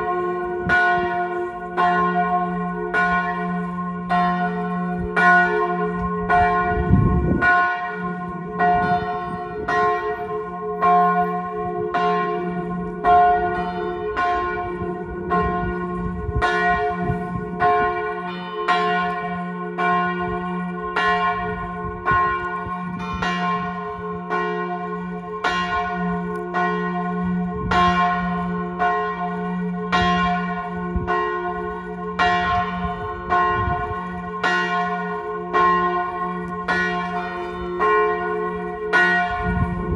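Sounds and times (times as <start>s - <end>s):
large church bell tolling: 0.0s - 39.9s.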